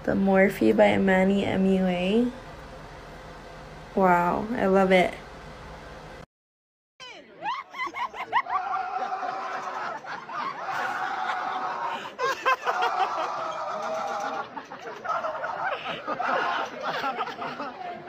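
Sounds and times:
teenagers laughing and calling out: 7.0 - 18.0.

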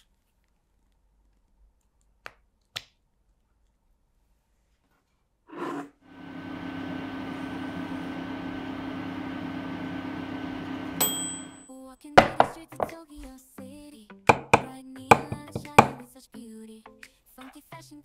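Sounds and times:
oven humming: 6.1 - 11.6
bright oven ding: 11.0 - 11.7.

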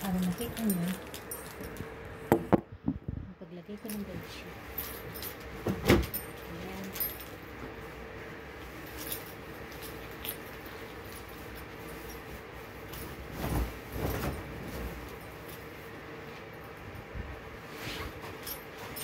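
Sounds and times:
keys jangling: 0.0 - 2.0, 3.8 - 7.5, 8.8 - 13.3, 18.2 - 19.0
bed sheet rustling and swishing: 11.8 - 15.5.

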